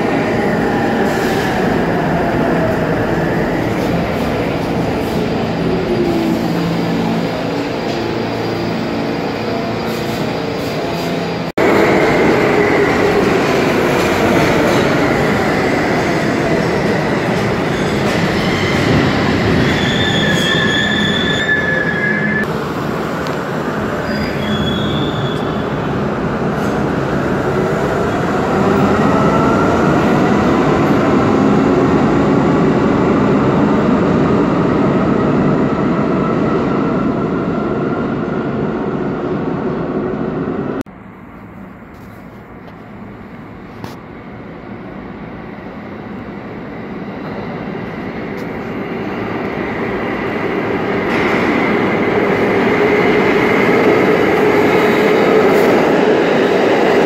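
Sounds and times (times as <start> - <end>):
subway train rumble and motor whine: 0.0 - 57.0
train wheel squeals: 17.4 - 22.5, 24.0 - 25.6.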